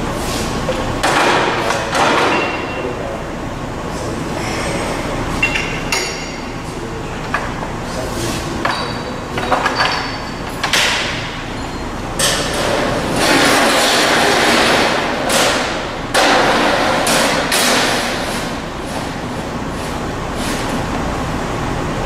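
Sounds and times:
sharp metal knocks: 0:01.0 - 0:02.8
sheet metal sliding and scraping: 0:12.4 - 0:20.9.

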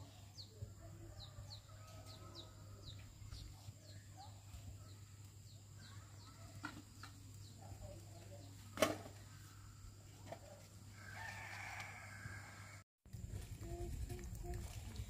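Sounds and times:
rooster crowing: 0:10.9 - 0:12.8.

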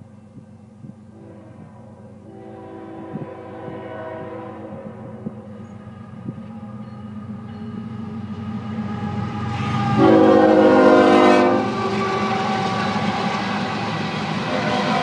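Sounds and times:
diesel locomotive engines running: 0:00.0 - 0:15.0
train cars rolling on rails: 0:00.0 - 0:15.0
locomotive horn: 0:01.2 - 0:05.3, 0:09.0 - 0:13.4, 0:14.4 - 0:15.0.

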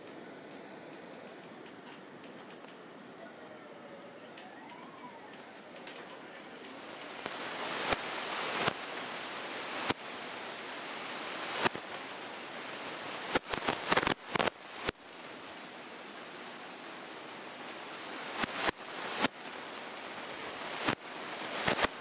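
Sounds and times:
wind blowing hiss: 0:04.8 - 0:22.0.

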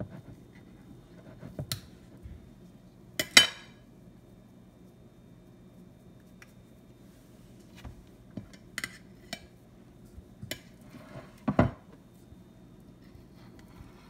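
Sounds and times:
knife clinking and scraping on plate: 0:08.5 - 0:09.5.

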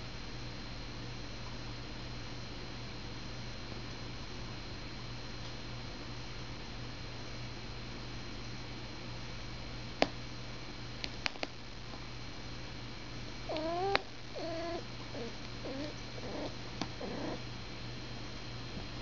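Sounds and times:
cat meowing: 0:13.5 - 0:17.4.

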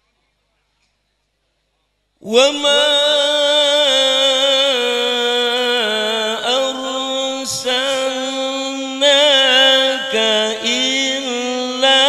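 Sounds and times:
man reciting melodically into microphone: 0:02.2 - 0:12.0.

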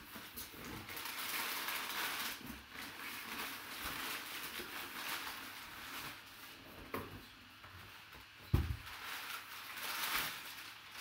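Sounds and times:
packing paper rustling: 0:00.0 - 0:07.2, 0:07.9 - 0:11.0.

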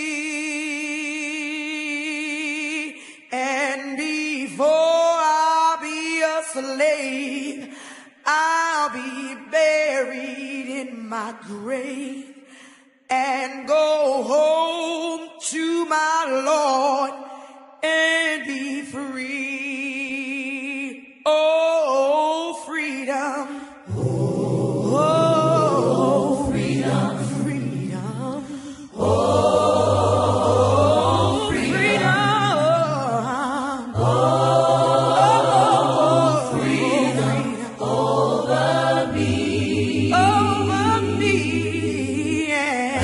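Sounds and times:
a cappella choir singing: 0:00.0 - 0:12.3, 0:22.8 - 0:43.0.

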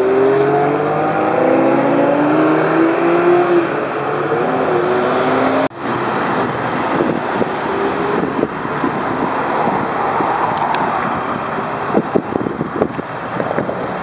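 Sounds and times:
sports car engine pulling away: 0:00.0 - 0:09.8.

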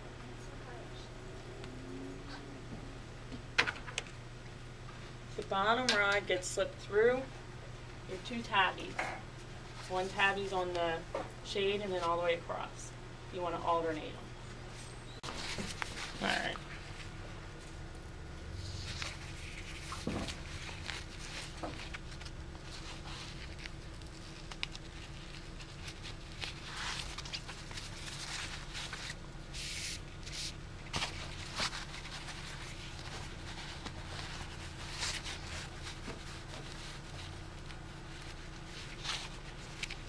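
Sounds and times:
steady low hum: 0:00.0 - 0:40.0
cloth rustling: 0:15.2 - 0:17.8, 0:18.6 - 0:40.0.

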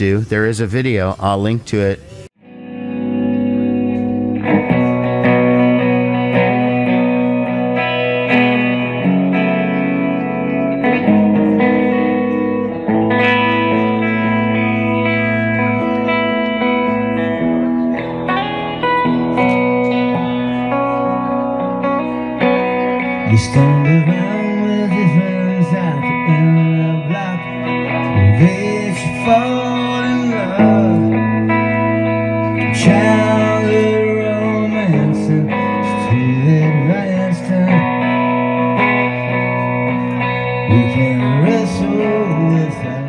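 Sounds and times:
electric guitar: 0:02.0 - 0:43.0
man singing: 0:22.7 - 0:39.4, 0:40.4 - 0:43.0.

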